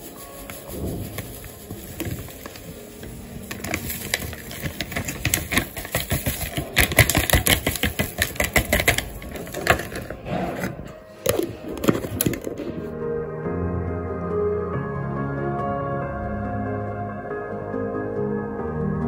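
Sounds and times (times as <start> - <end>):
detergent pouring into glass jar: 0.0 - 10.2.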